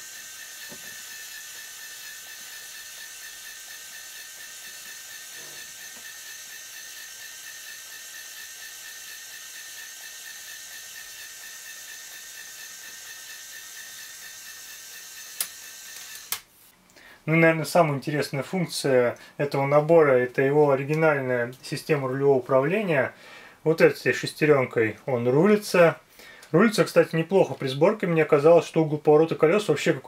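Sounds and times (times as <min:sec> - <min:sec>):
toy motor whirring: 0:00.0 - 0:16.5.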